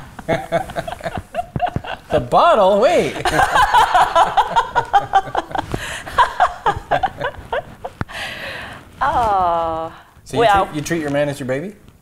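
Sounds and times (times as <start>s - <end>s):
man and woman laughing: 0.2s - 2.3s, 3.0s - 8.1s.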